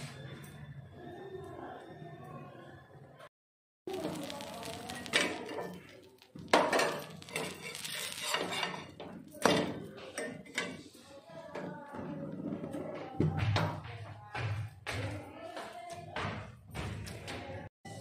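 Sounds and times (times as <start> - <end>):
metal spatula scraping griddle: 3.9 - 11.1.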